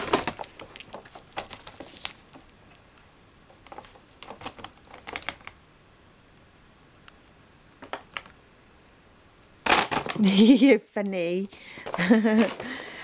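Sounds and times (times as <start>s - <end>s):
crisp packet crinkling: 0.0s - 2.5s.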